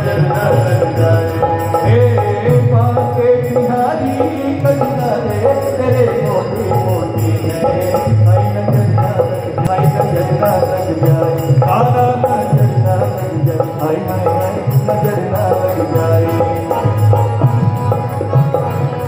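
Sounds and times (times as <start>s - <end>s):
devotional song over loudspeakers: 0.0s - 19.0s.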